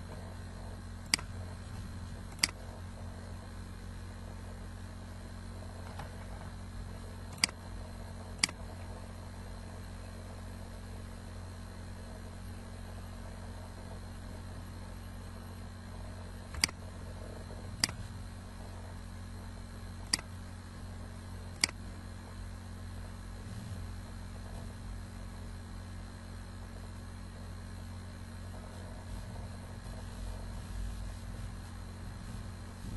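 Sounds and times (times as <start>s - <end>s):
low electrical hum and hiss: 0.0s - 32.9s
computer mouse clicks: 1.0s - 2.8s, 7.3s - 7.7s, 8.4s - 9.0s, 16.4s - 18.2s, 20.0s - 20.4s, 21.5s - 21.9s.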